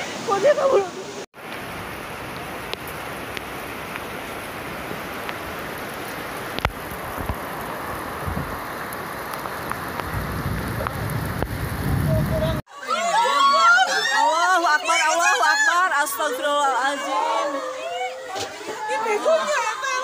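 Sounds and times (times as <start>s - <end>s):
heavy rain pouring on street: 0.0s - 12.6s.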